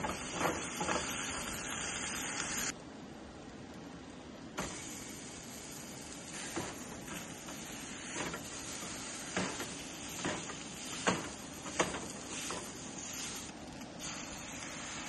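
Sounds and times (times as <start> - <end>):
food sizzling in a pan: 0.0 - 2.7, 4.6 - 15.0
utensil scraping a pan: 6.4 - 15.0.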